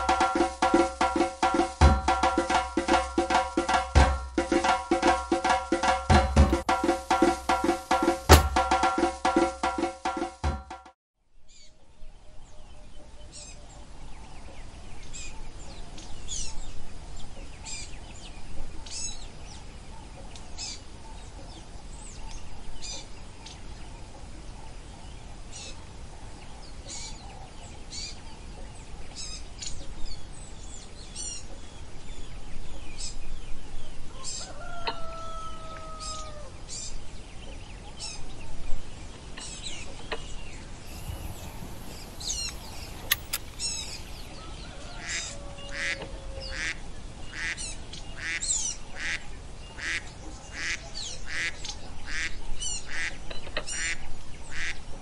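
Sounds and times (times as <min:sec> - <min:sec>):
birds chirping: 0:06.4 - 0:08.6, 0:40.8 - 0:46.5
sharp click: 0:06.4 - 0:08.6, 0:40.9 - 0:44.3.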